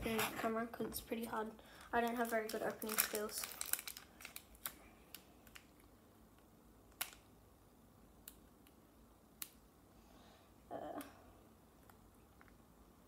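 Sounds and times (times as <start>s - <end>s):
foil pack crackling open: 2.0s - 5.7s.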